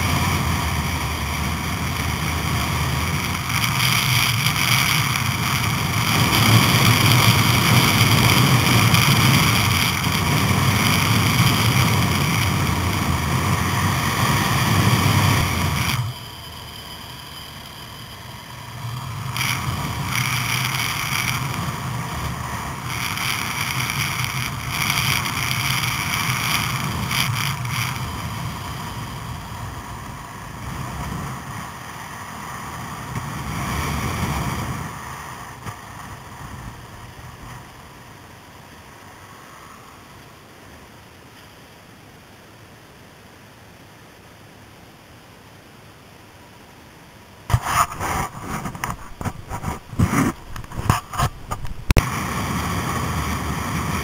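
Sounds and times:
wind on microphone: 0.0 - 16.3, 47.5 - 54.0
motorcycle engine running: 0.0 - 34.9, 47.5 - 54.0.

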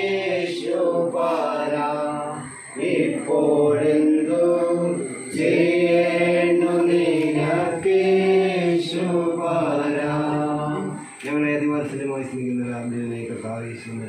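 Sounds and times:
person chanting prayer: 0.0 - 14.0.

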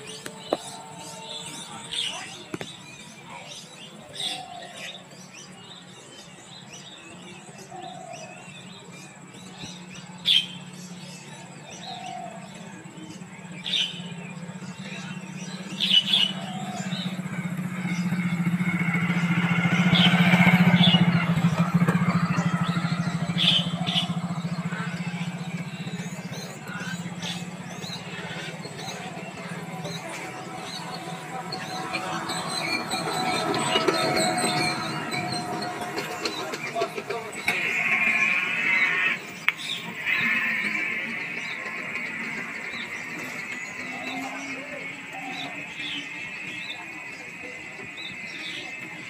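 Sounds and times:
vehicle engine hum: 0.0 - 49.0
mynas calling: 11.5 - 49.0.

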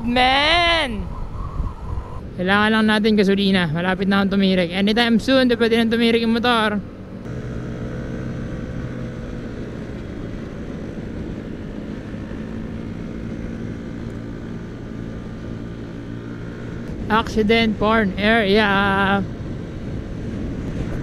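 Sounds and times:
wind noise: 0.0 - 6.0, 7.0 - 21.0
road noise: 0.0 - 21.0
scooter engine running: 7.3 - 21.0.

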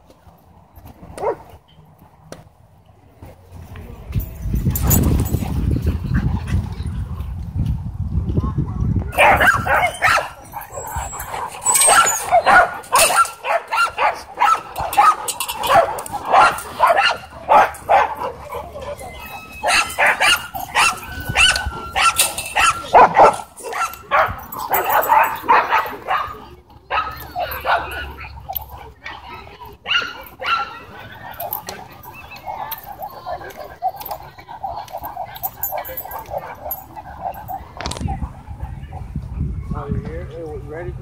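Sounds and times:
dogs barking: 1.2 - 1.5, 9.1 - 39.5.

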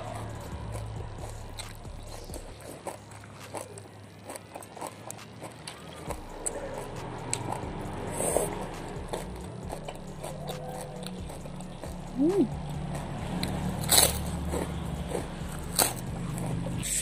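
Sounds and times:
wet chewing: 0.0 - 17.0.

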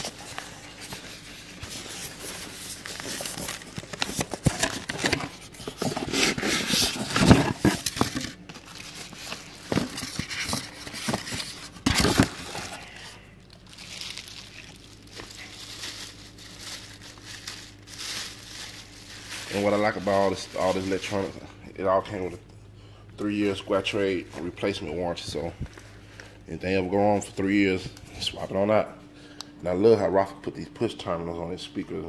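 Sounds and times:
foam packing scraping and creaking: 0.0 - 14.7
plastic wrapping crinkling: 0.0 - 21.5.

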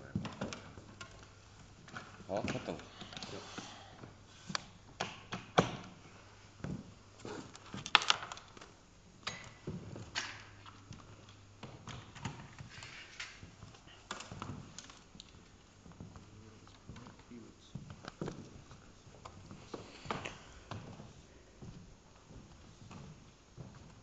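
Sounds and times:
faint low hum: 5.7 - 24.0.

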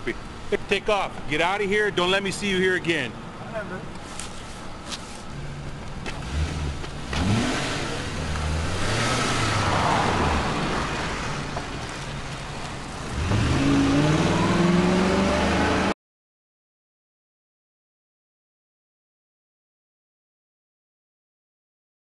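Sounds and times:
car engine accelerating: 5.3 - 16.0.

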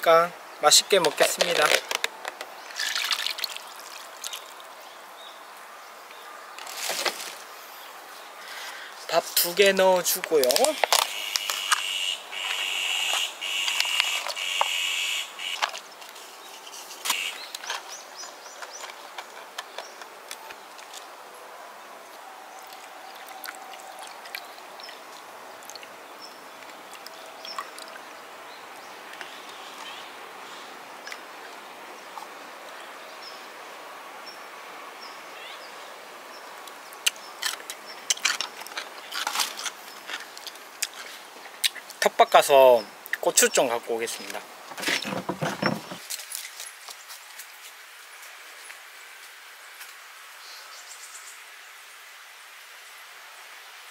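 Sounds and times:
outdoor background hiss: 0.0 - 53.9
containers being handled: 0.9 - 3.6, 9.6 - 11.8, 44.2 - 46.7.

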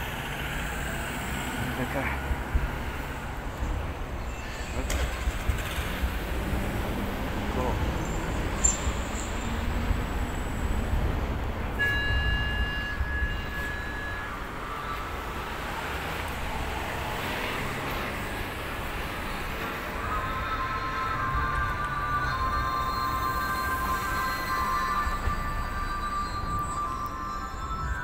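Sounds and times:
road traffic rumble: 0.0 - 28.0
high steady tone: 11.7 - 17.6, 18.2 - 28.0.

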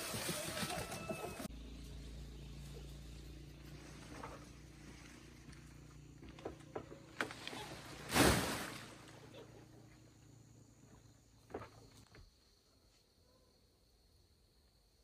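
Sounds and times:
leaves splashing into water: 7.3 - 9.2.

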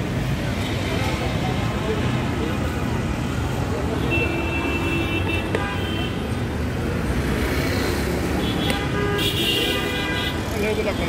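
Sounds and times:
street traffic rumbling: 0.0 - 11.0
vehicle horns: 3.9 - 6.3, 8.4 - 11.0.

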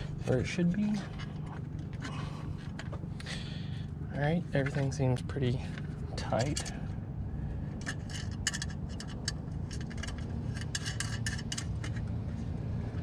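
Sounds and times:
low background hum: 0.0 - 13.0
metal cover clicking and scraping: 5.8 - 6.8, 7.7 - 12.3.

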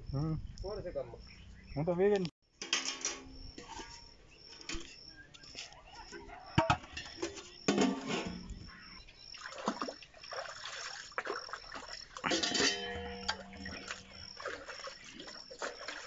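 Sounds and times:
metal pot clanking: 2.6 - 4.1, 6.6 - 8.5, 12.2 - 14.8
water splashing and sloshing: 2.7 - 16.0.

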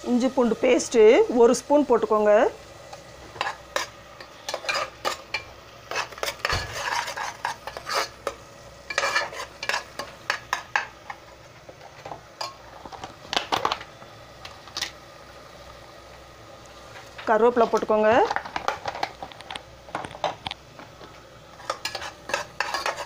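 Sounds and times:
faint sizzle: 0.0 - 23.0
metal spoon scraping a pot: 3.3 - 10.9, 21.6 - 23.0.

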